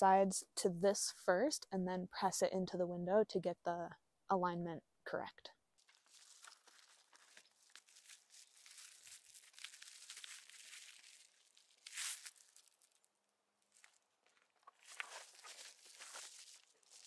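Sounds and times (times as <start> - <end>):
foil insulation crinkling: 5.8 - 13.1, 13.7 - 17.0.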